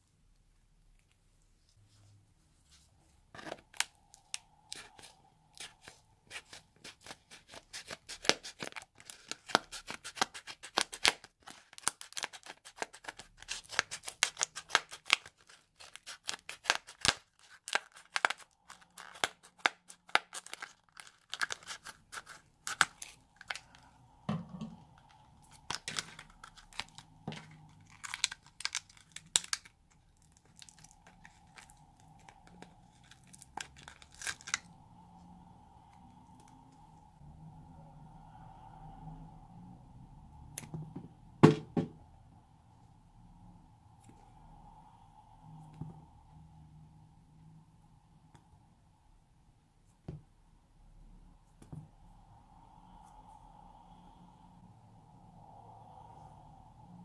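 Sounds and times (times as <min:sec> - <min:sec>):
stiff plastic crackling: 0:24.5 - 0:34.7.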